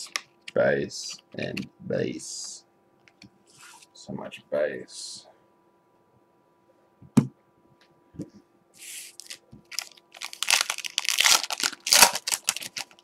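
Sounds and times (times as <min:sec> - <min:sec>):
plastic wrapper tearing and crinkling: 0:09.1 - 0:13.0.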